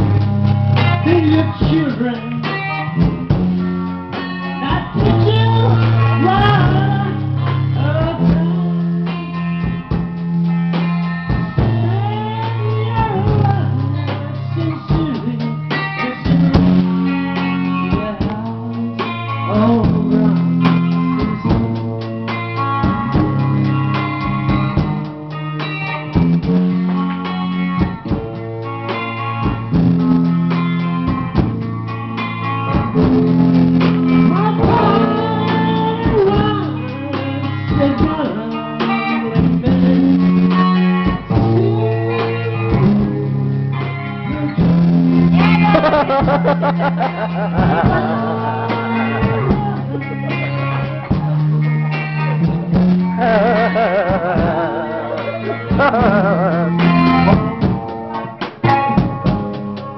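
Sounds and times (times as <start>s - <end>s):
bass notes: 0.0s - 59.9s
drums: 0.0s - 59.9s
electric guitar: 0.0s - 59.9s
man singing: 0.9s - 2.7s, 11.8s - 16.7s, 17.8s - 21.4s, 34.3s - 40.6s, 53.1s - 57.6s.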